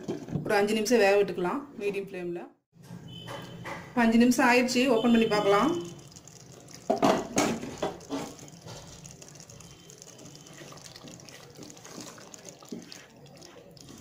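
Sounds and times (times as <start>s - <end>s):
wet stirring of thick gravy: 5.2s - 14.0s
wooden spatula knocking a pot: 6.8s - 8.6s.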